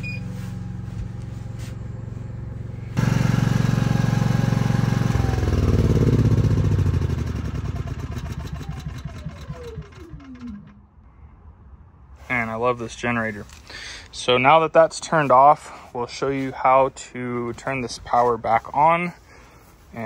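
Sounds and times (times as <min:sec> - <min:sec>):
generator engine running: 0:00.0 - 0:11.2
engine winding down whine: 0:00.0 - 0:11.6.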